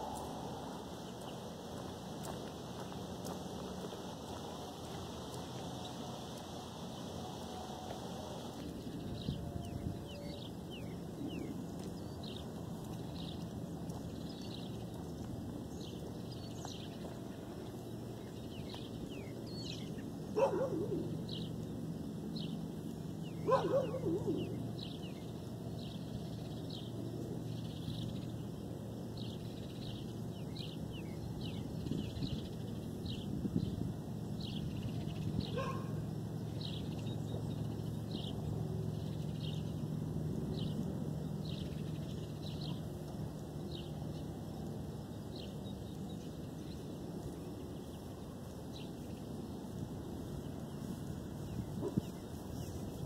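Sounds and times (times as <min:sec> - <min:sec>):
dog barking: 0:20.4 - 0:21.0, 0:23.4 - 0:24.5, 0:35.5 - 0:36.0, 0:51.8 - 0:52.0.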